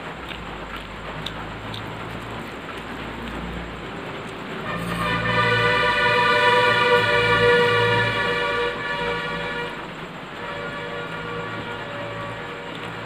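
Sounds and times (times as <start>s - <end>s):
train horn blast: 4.6s - 13.0s.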